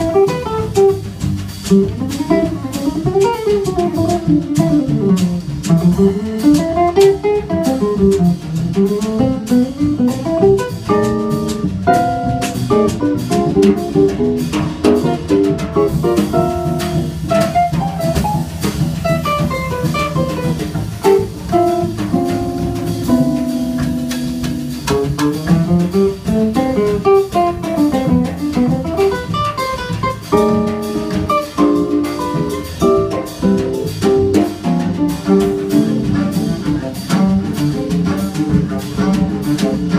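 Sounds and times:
acoustic guitar: 0.1 - 26.1
drum kit cymbal ticks: 20.4 - 27.4
cello: 30.0 - 39.9.

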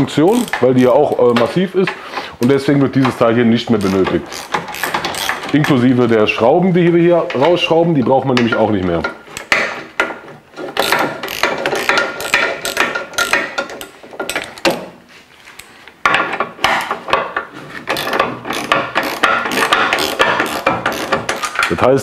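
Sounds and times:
hand ratchet clicking: 0.3 - 1.2, 3.0 - 5.8, 9.1 - 14.8, 17.9 - 21.8.

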